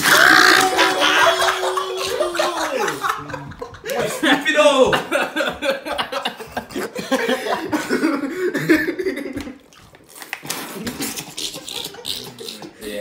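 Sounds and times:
coughing and spluttering: 0:00.0 - 0:03.4, 0:10.4 - 0:13.0
teenagers laughing: 0:00.0 - 0:09.6, 0:11.0 - 0:13.0.

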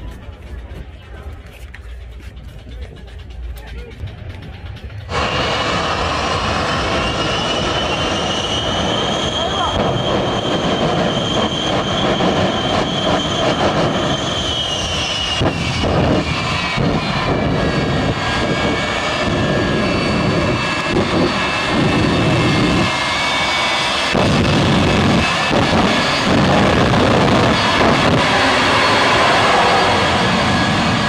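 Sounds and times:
jet engines roaring with high whine: 0:00.0 - 0:31.0.

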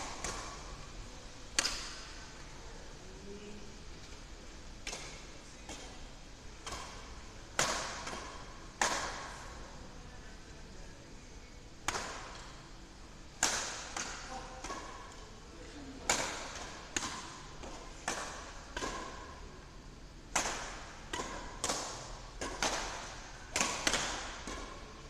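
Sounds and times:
badminton rackets smacking shuttlecock: 0:00.0 - 0:00.9, 0:01.5 - 0:02.2, 0:04.8 - 0:05.9, 0:06.6 - 0:09.6, 0:11.8 - 0:12.6, 0:13.4 - 0:15.4, 0:16.0 - 0:19.5, 0:20.2 - 0:25.0.

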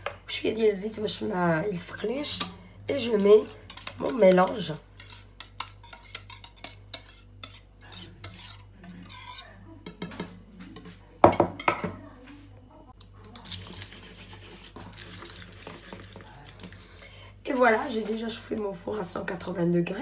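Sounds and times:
metal whisk scraping a pot: 0:02.2 - 0:10.0.

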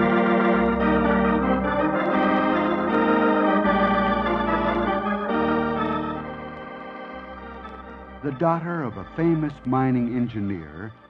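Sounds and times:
organ chords: 0:00.0 - 0:11.0.

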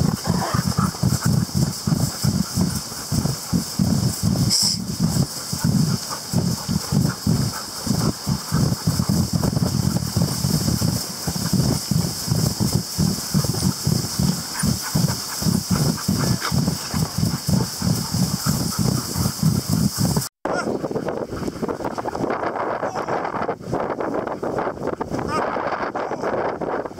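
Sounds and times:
constant hiss: 0:00.0 - 0:25.2
wind noise on microphone: 0:00.0 - 0:26.9.

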